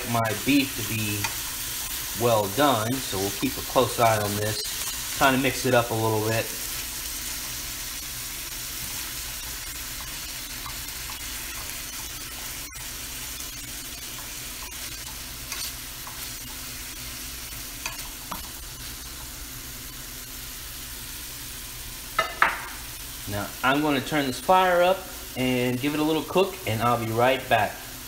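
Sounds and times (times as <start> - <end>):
food sizzling in a frying pan: 0.0 - 28.0
spatula stirring and scraping: 0.1 - 19.5.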